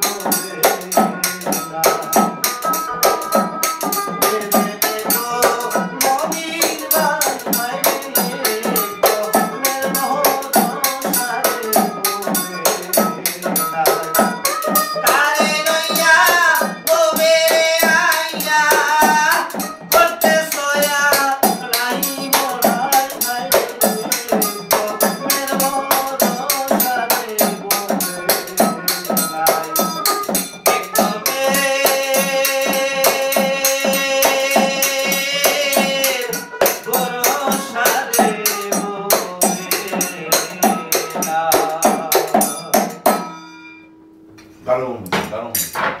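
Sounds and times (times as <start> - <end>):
men singing: 0.0 - 43.3
hand drum: 0.0 - 43.4
jingling percussion: 0.0 - 43.8
plucked string instrument: 0.0 - 46.0.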